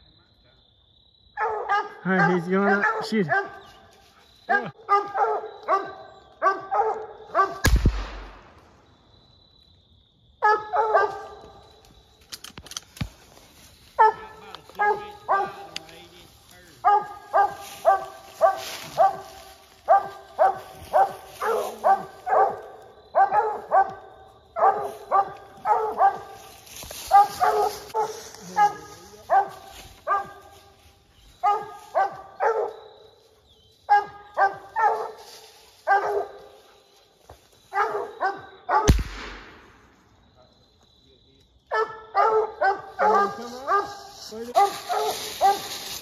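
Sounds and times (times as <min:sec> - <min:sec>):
dog barking: 0:01.4 - 0:03.8, 0:04.5 - 0:07.6, 0:10.4 - 0:11.5, 0:14.0 - 0:15.8, 0:16.8 - 0:26.4, 0:27.0 - 0:30.6, 0:31.4 - 0:33.0, 0:33.8 - 0:35.2, 0:35.8 - 0:36.6, 0:37.7 - 0:38.9, 0:41.7 - 0:45.7
dry leaves crunching underfoot: 0:16.1 - 0:22.4, 0:24.9 - 0:32.1, 0:34.8 - 0:36.7, 0:43.1 - 0:46.0.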